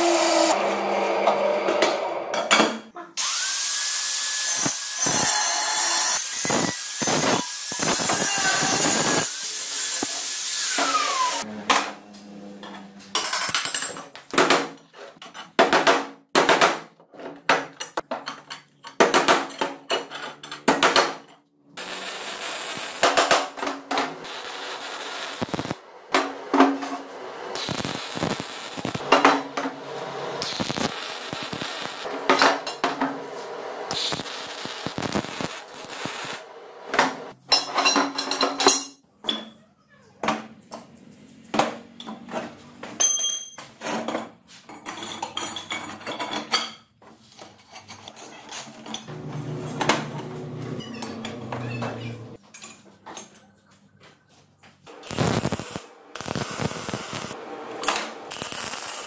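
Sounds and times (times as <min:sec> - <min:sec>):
angle grinder winding down: 0:00.0 - 0:02.3, 0:03.2 - 0:11.5
arc welding crackle: 0:03.2 - 0:11.4, 0:21.8 - 0:23.4, 0:24.2 - 0:25.8, 0:27.5 - 0:29.1, 0:29.9 - 0:32.1, 0:33.9 - 0:36.5, 0:54.9 - 0:59.0.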